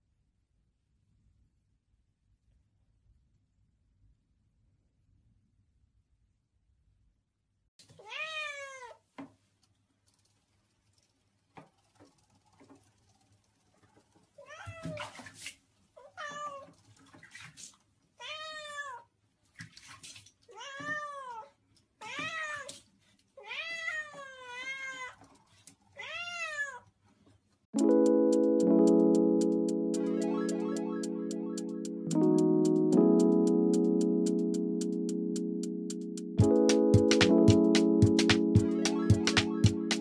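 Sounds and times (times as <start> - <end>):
cat meowing: 8.0 - 9.0, 14.4 - 15.0, 16.0 - 16.7, 18.2 - 19.1, 20.5 - 22.8, 23.4 - 25.2, 26.0 - 26.9.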